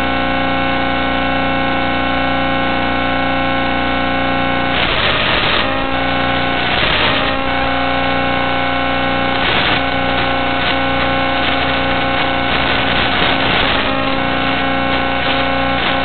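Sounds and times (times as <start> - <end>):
electronic buzz: 0.0 - 16.0
static hiss bursts: 4.6 - 16.0.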